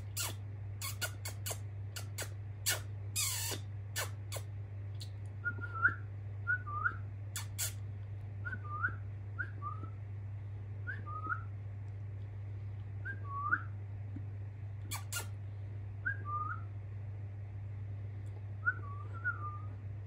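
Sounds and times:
low hum: 0.0s - 20.0s
budgerigar chirping: 0.2s - 3.6s.

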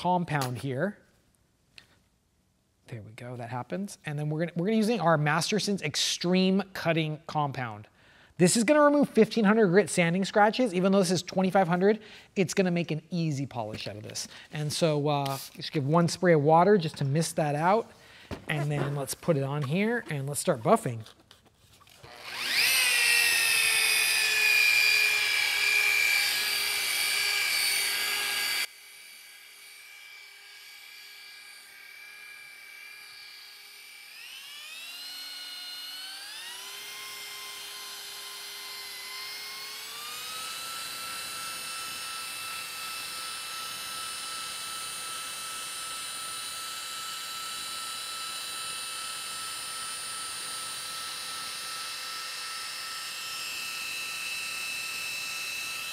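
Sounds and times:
electric polisher motor whine: 21.9s - 55.9s.

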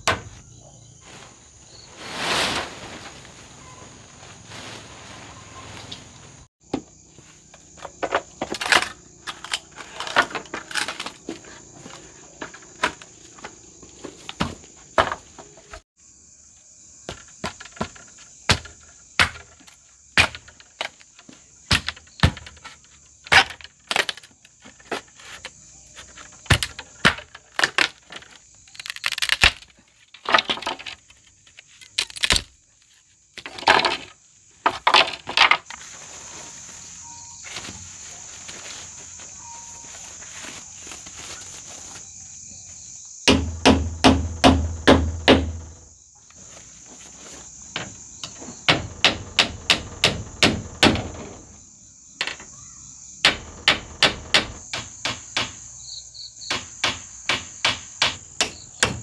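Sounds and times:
sharp knocks and cracks: 17.0s - 32.6s, 33.4s - 35.8s, 43.2s - 45.8s, 47.7s - 51.5s, 53.2s - 55.6s, 56.5s - 59.0s
high-pitched insect drone: 35.8s - 43.3s.

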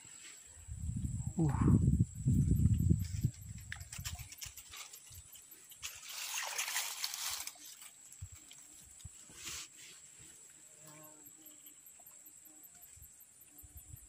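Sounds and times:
high insect whine: 0.0s - 14.0s
rustling grass: 2.6s - 10.7s
splashing in shallow water: 5.8s - 7.9s.

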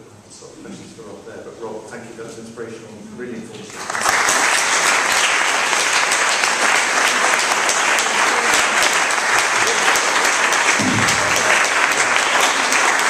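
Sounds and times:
audience applauding: 3.7s - 13.0s.

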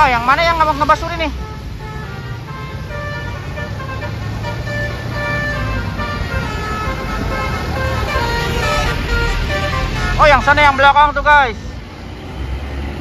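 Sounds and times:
rumble of passing vehicles: 0.0s - 13.0s
bus horn playing a tune: 0.5s - 10.6s.

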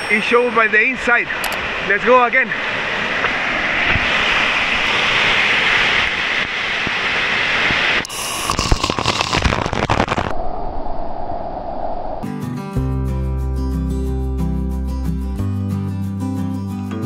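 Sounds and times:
waterfall rushing: 0.1s - 10.3s.

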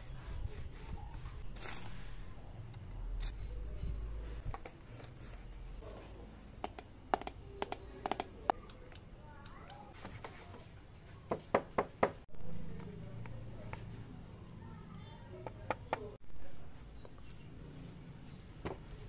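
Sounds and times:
taps on plastic panels: 6.6s - 8.7s.

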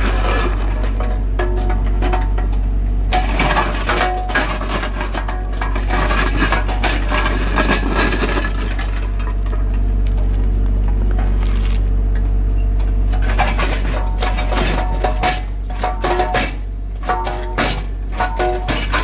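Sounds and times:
bucket scraping gravel: 0.0s - 1.3s, 3.2s - 9.7s, 11.1s - 12.0s
diesel engine running: 0.0s - 19.0s.

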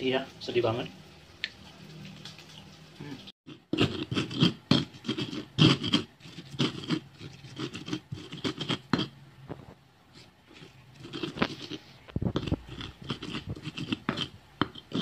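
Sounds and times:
stone pestle grinding in mortar: 3.5s - 9.2s, 10.2s - 15.0s.

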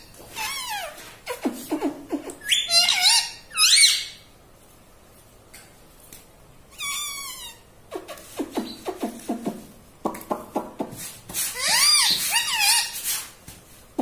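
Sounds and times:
parakeet calling: 2.4s - 4.3s, 6.8s - 9.1s.

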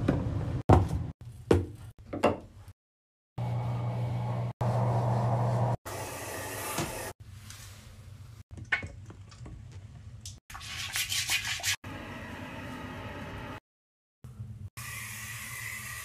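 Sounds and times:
toilet brush scrubbing bowl: 10.5s - 11.8s.

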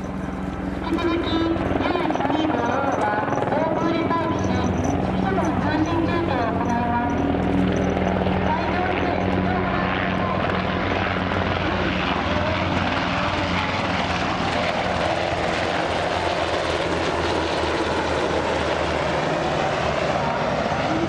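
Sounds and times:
helicopters droning past: 0.0s - 21.0s.

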